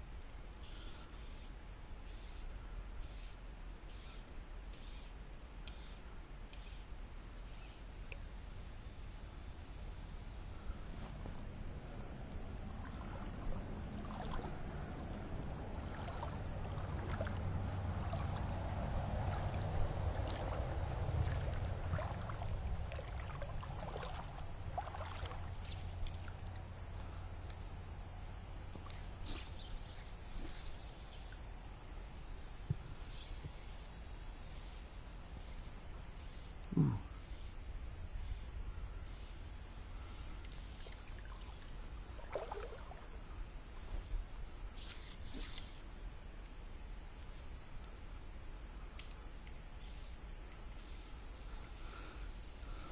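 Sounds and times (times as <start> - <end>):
steady high hiss: 0.0 - 52.9
water splashing against kayak hull: 12.6 - 26.5, 40.8 - 43.2.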